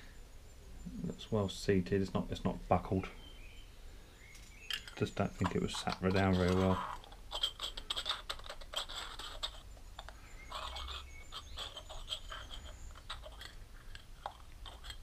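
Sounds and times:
small metal parts clicking and scraping: 4.3 - 15.0.

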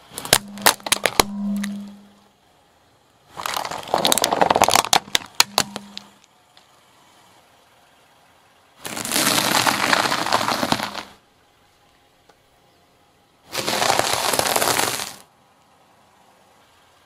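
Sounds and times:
tyre crunching snacks: 3.3 - 5.8, 8.8 - 11.1, 13.5 - 15.3.

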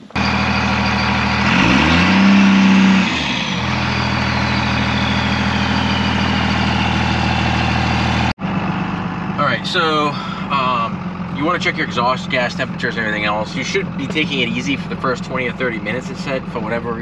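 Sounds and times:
diesel engine idling and revving: 0.0 - 17.0.

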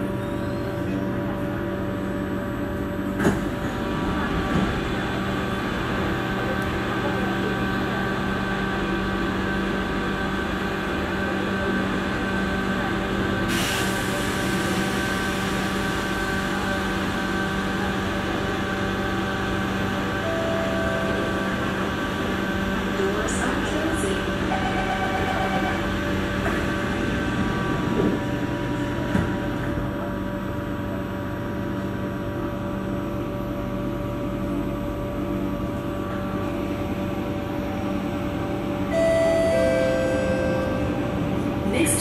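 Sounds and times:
train car hum: 0.0 - 42.0
steady equipment tones: 38.9 - 41.1.

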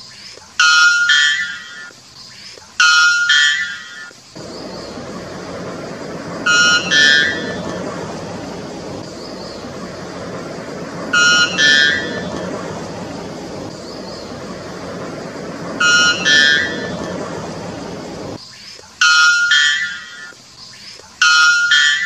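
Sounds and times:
background hiss: 0.0 - 22.0
bird two-note calls: 2.8 - 18.4, 19.0 - 20.3.

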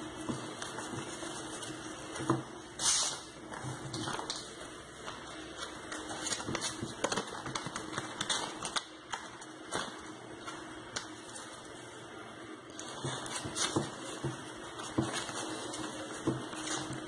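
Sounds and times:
foam flowers clicking and rustling: 0.2 - 11.7, 12.8 - 17.0.

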